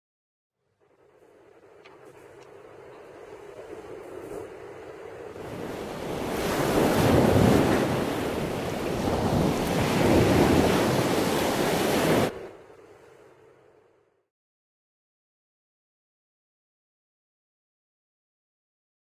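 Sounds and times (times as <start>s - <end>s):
waves washing in: 2.0s - 13.5s.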